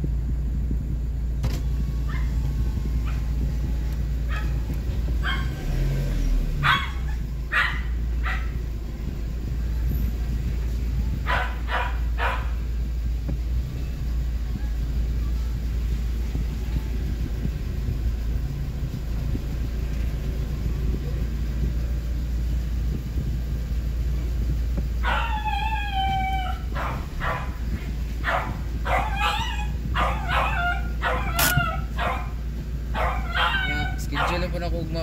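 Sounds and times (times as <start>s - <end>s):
car engine running: 0.0s - 35.0s
dog yelping barks: 2.1s - 2.4s, 3.0s - 3.4s, 4.2s - 5.8s, 6.5s - 8.7s, 11.2s - 12.7s, 25.0s - 34.6s
dog whining: 25.0s - 34.4s.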